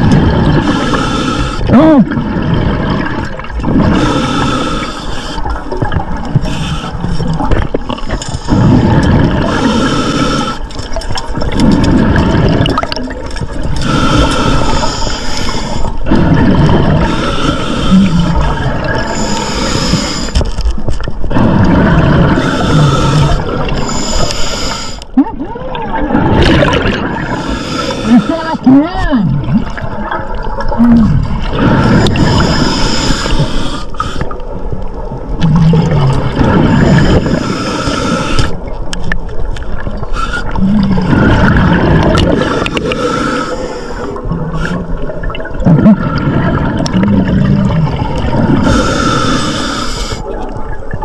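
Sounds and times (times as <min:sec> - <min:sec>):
diver inhaling through regulator: 0:00.6 - 0:01.7, 0:03.8 - 0:05.6, 0:07.9 - 0:10.8, 0:13.8 - 0:20.5, 0:21.4 - 0:25.1, 0:27.2 - 0:28.4, 0:31.4 - 0:34.4, 0:36.4 - 0:38.7, 0:40.1 - 0:45.1, 0:48.3 - 0:50.3
bubbling exhalation underwater: 0:01.6 - 0:04.2, 0:07.2 - 0:10.0, 0:11.3 - 0:14.5, 0:16.0 - 0:17.2, 0:17.9 - 0:19.5, 0:21.3 - 0:24.1, 0:25.2 - 0:27.4, 0:28.0 - 0:32.8, 0:35.2 - 0:37.5, 0:39.8 - 0:43.2, 0:44.0 - 0:49.3.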